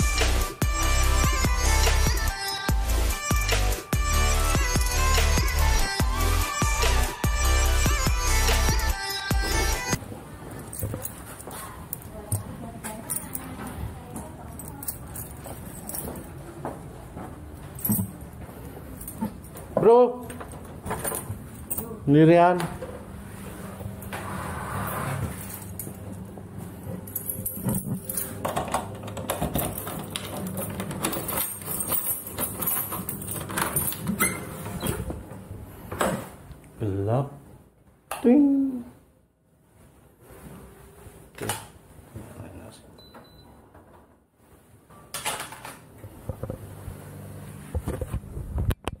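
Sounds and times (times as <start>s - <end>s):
keys jangling: 14.4s - 16.5s, 17.7s - 19.7s, 20.8s - 22.0s, 26.9s - 34.6s.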